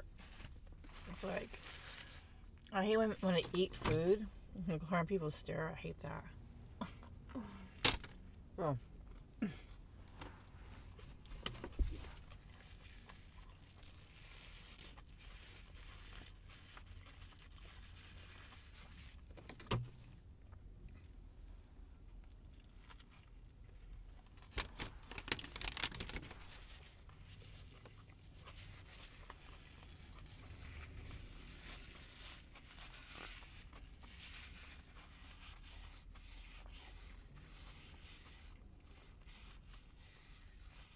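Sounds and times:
wrapping crinkling: 11.0 - 19.6, 24.1 - 37.2
chewing: 12.0 - 19.3, 20.4 - 24.5, 26.4 - 31.2.

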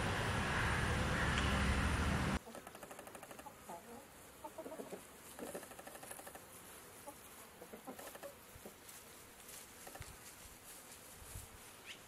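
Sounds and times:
chickens clucking: 2.4 - 6.4, 7.0 - 8.8.

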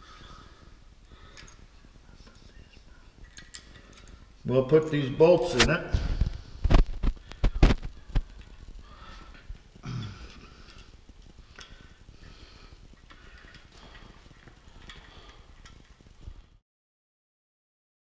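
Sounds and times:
small bolts clicking and scraping: 1.3 - 1.7, 3.2 - 4.3, 10.3 - 12.1, 13.0 - 16.0.

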